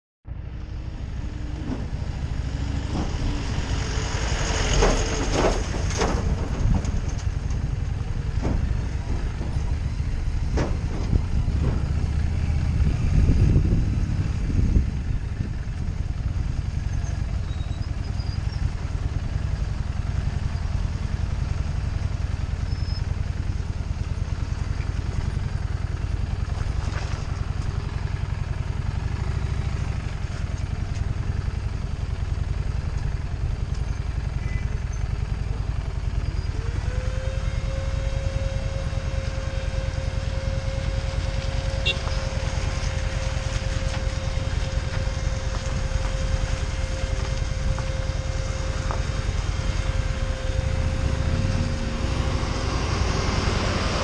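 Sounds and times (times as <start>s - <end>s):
motorcycle engine rumbling: 0.2s - 54.0s
knocks and rattles: 1.6s - 13.4s.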